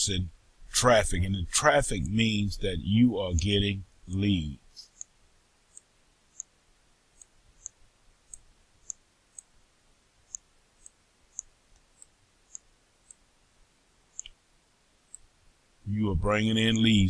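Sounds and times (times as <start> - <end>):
computer mouse clicks: 4.9 - 5.1, 5.7 - 6.5, 7.2 - 9.5, 10.3 - 13.2, 14.1 - 14.4.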